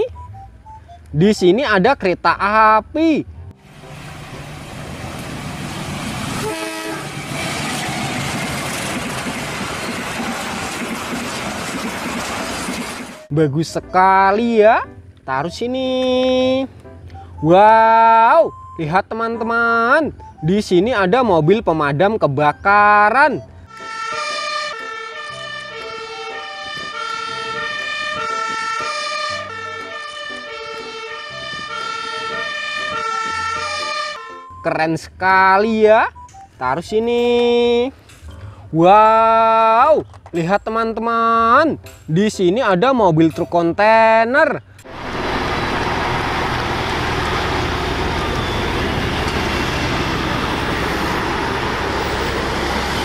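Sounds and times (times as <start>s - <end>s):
truck driving past: 3.2s - 13.3s, 44.8s - 53.0s
fire engine siren: 6.4s - 7.6s, 23.7s - 34.7s, 44.9s - 53.0s.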